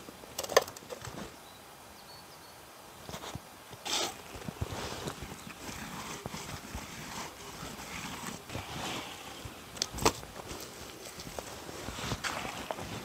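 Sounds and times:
soil rustling and crumbling: 3.1 - 13.0.

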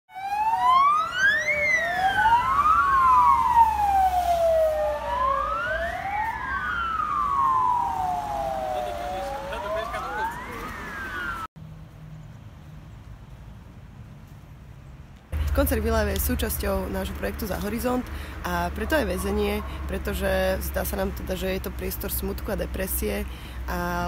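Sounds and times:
emergency siren wailing: 0.1 - 11.5, 18.7 - 20.7
second overlapping siren wail: 0.1 - 11.5
low vehicle rumble: 0.4 - 24.0.

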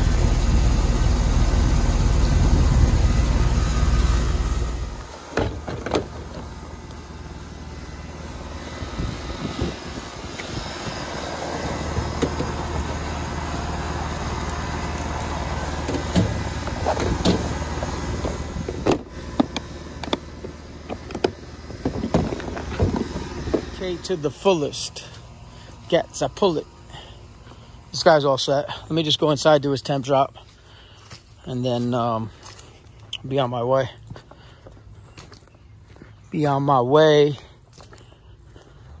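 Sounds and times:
air conditioner condenser humming: 0.0 - 33.4
hoses and gauges clicking: 8.6 - 26.4.

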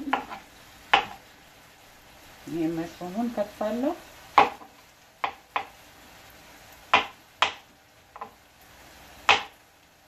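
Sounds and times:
knife striking cutting board: 0.1 - 1.2, 6.9 - 7.6, 9.3 - 9.5.

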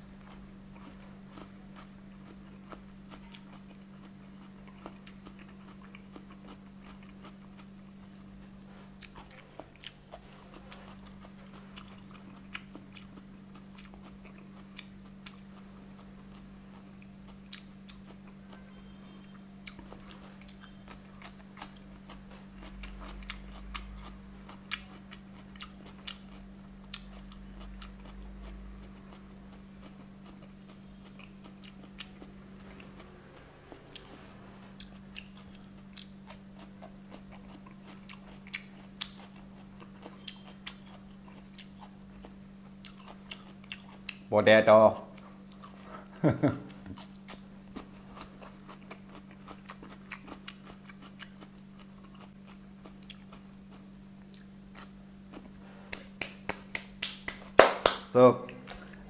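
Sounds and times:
steady low hum: 0.0 - 59.0
chewing and crunching cucumber: 0.2 - 44.3, 44.9 - 59.0.

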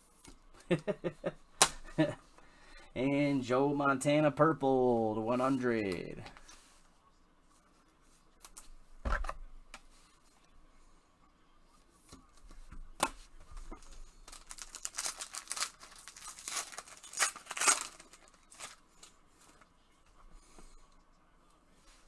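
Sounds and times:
wrapper ripping and rustling: 13.8 - 19.1.

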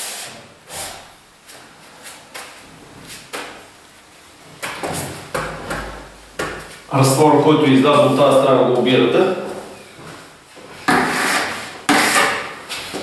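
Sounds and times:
plaster rule knocking and scraping: 10.9 - 12.5.

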